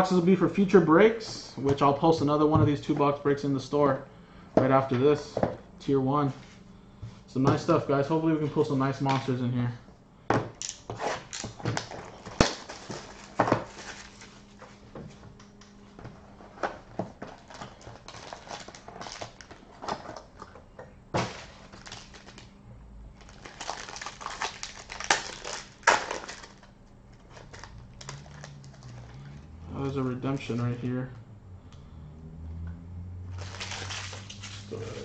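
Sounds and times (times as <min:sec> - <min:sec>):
plastic shrink wrap crinkling: 0:17.2 - 0:20.3, 0:21.2 - 0:22.5, 0:23.2 - 0:29.4, 0:33.3 - 0:35.0
foil pack tearing: 0:17.4 - 0:19.7, 0:21.2 - 0:22.5, 0:23.2 - 0:29.1, 0:33.3 - 0:35.0.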